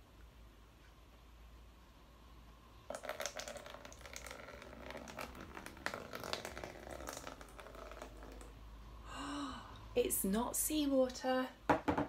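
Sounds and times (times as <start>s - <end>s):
water pouring into plastic tub: 2.9s - 8.6s.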